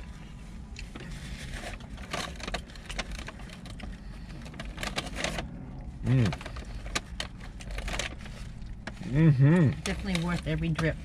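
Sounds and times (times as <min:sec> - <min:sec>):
low steady hum: 0:00.0 - 0:11.0
paper wrapper rustling: 0:01.0 - 0:09.1.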